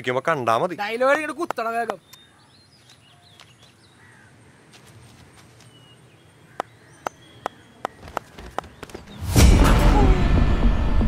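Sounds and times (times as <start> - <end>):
sharp taps: 6.6 - 9.0.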